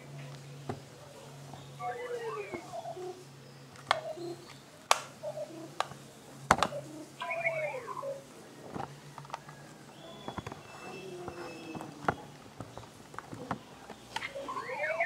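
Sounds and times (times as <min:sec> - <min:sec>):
plastic clicks and taps: 0:05.8 - 0:06.8.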